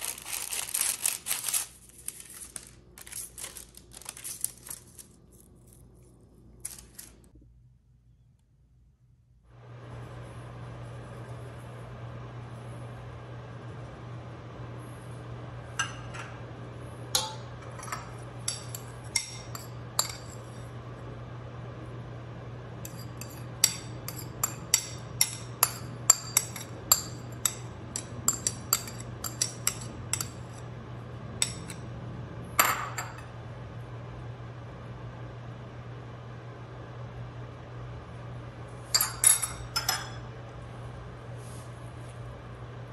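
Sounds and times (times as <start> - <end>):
metal spoon clinking on pot: 17.2 - 20.5, 22.9 - 30.4.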